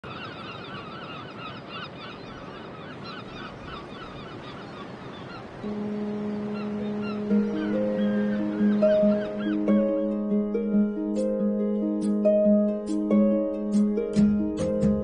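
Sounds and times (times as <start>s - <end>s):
gulls calling: 0.0s - 13.2s
low held musical note: 5.6s - 15.0s.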